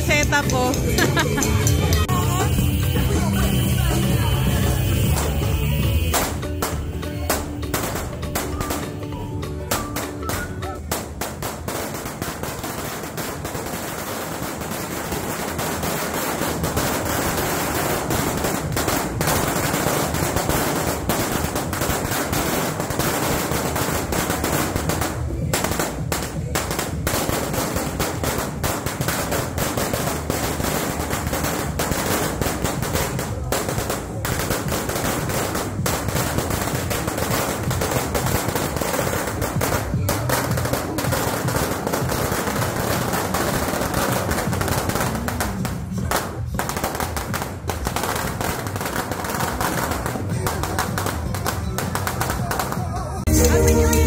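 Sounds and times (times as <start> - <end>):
firecrackers cracking: 0.0 - 54.0.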